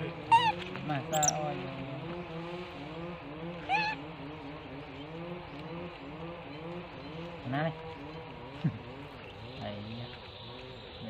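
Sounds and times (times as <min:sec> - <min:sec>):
monkey squeak: 0:00.3 - 0:01.4, 0:03.7 - 0:04.0.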